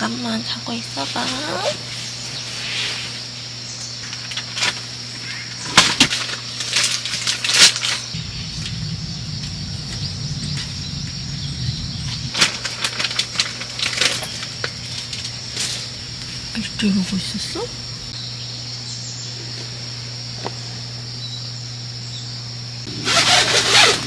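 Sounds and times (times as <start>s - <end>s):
night insects chirring: 0.0s - 24.0s
rustling and crackling: 5.7s - 17.9s.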